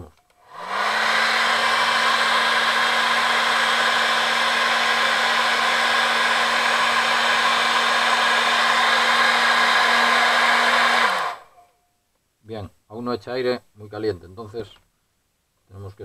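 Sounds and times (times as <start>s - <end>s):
hair dryer running: 0.4s - 11.6s.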